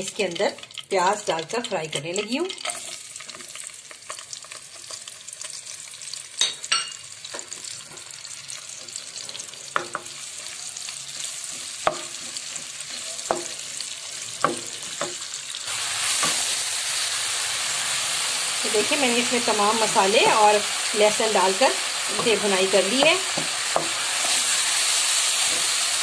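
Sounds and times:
onions sizzling in hot oil: 0.0 - 26.0
wooden spoon knocking on pan: 9.8 - 10.1, 13.3 - 13.6, 14.4 - 15.2, 22.1 - 24.0.

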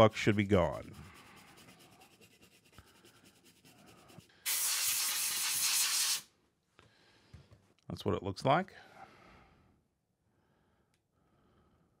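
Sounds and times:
brush scrubbing circuit board: 0.0 - 6.2
compressed air spray hissing: 4.4 - 6.3.

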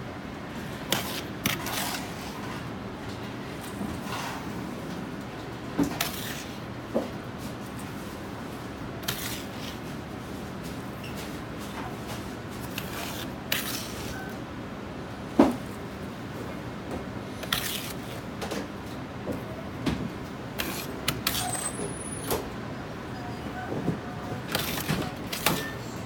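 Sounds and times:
metal ladle scraping salt: 0.9 - 2.3, 9.0 - 9.8, 12.7 - 14.2, 17.4 - 18.1, 20.6 - 21.7.

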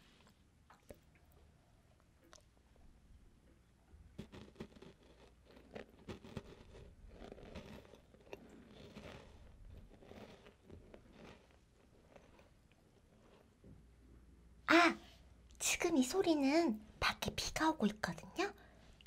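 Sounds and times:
cookie being chewed: 0.0 - 2.6, 3.9 - 13.8.

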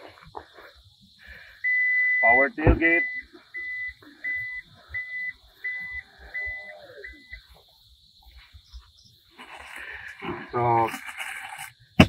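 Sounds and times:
warning buzzer beeping: 1.6 - 7.5.

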